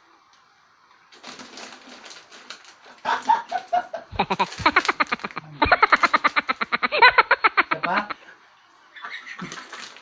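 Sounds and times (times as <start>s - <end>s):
crunchy snack packet crackling: 1.2s - 6.5s
person laughing: 3.1s - 8.3s.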